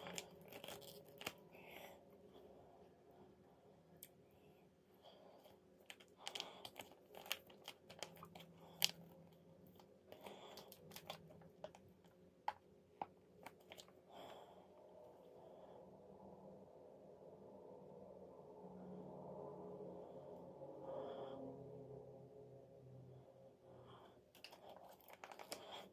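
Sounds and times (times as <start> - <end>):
foil sachet crinkling: 0.0 - 1.4, 5.9 - 9.0, 24.4 - 25.9.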